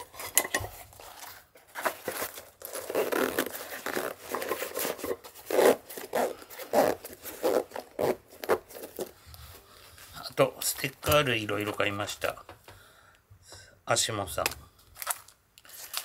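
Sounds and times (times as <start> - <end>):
cloth rustling: 0.0 - 12.1
zipper rasps: 2.2 - 9.2.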